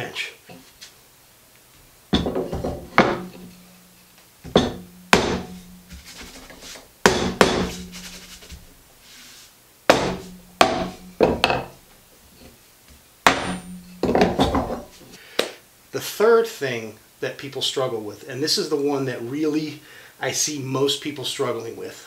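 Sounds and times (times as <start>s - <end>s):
mallet knocking on metal: 2.2s - 3.6s, 4.5s - 6.0s, 7.0s - 8.3s, 9.9s - 11.8s, 13.3s - 14.9s
low ring from workbench: 2.2s - 6.8s, 10.1s - 11.8s, 13.3s - 15.2s.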